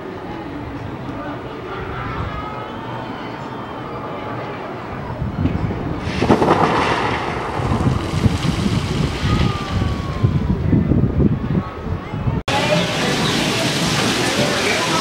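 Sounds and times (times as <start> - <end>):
wind buffeting microphone: 4.9 - 15.0
water spray hissing: 12.5 - 15.0.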